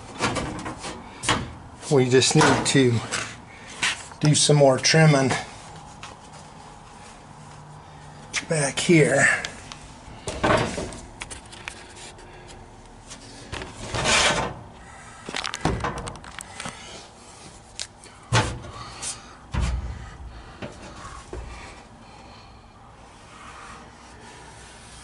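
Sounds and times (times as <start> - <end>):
sheet metal scraping: 13.8 - 14.6
metal knocks and bumps: 19.5 - 21.6.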